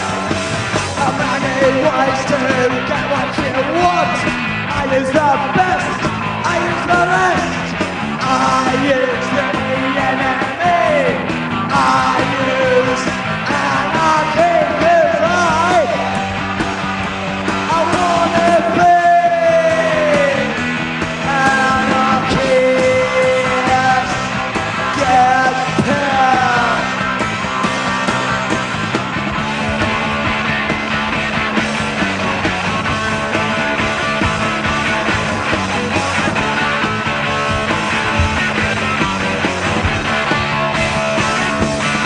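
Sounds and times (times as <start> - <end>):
shouted lead vocal: 0.0 - 16.3, 17.5 - 27.2
punk rock band playing: 0.0 - 42.0.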